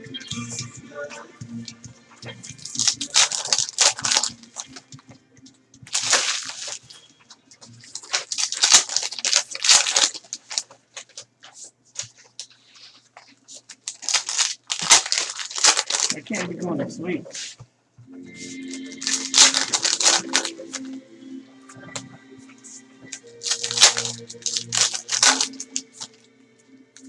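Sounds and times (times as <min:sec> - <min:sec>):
foil wrappers crinkling and tearing: 0:02.5 - 0:04.8, 0:05.9 - 0:07.0, 0:07.7 - 0:11.3, 0:12.0 - 0:16.6, 0:18.4 - 0:21.0, 0:23.2 - 0:26.2
cards being handled: 0:02.5 - 0:05.1, 0:05.9 - 0:17.7, 0:18.4 - 0:21.0, 0:23.1 - 0:26.2.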